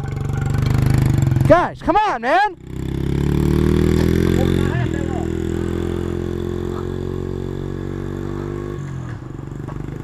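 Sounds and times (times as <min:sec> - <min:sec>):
motorbike engine running: 0:00.0 - 0:10.0.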